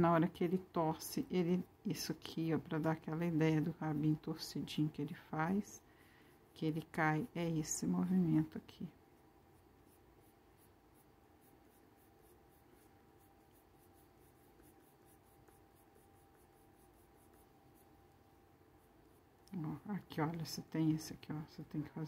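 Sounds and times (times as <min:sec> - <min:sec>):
pencil scratching on paper: 0:02.5 - 0:05.7, 0:09.5 - 0:21.2.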